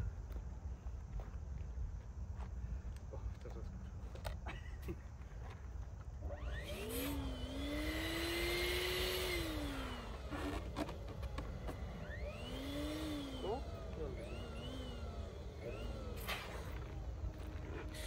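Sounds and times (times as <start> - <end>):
electric balloon pump motor whine: 6.2 - 18.0.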